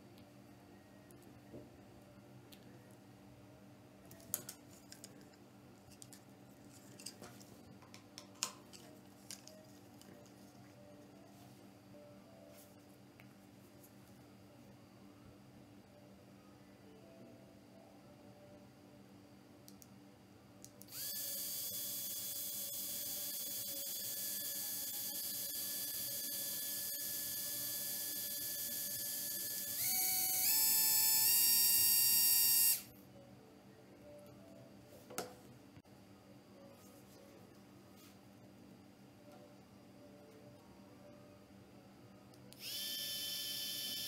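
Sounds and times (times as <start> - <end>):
low steady hum: 0.0 - 21.1, 32.7 - 43.8
cooling fan whine: 0.0 - 44.0.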